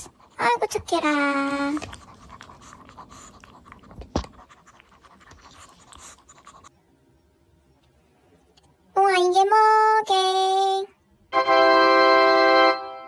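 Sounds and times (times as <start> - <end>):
dog chewing and licking: 0.0 - 6.7.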